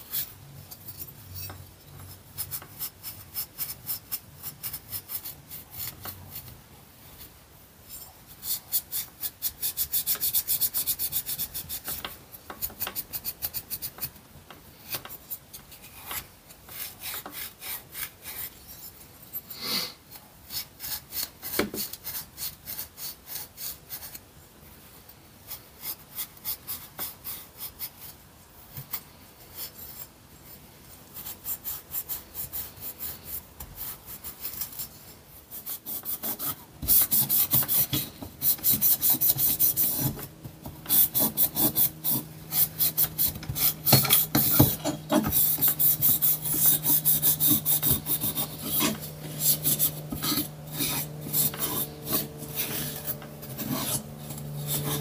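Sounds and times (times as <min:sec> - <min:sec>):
abrasive pad scrubbing metal: 0:35.6 - 0:55.0.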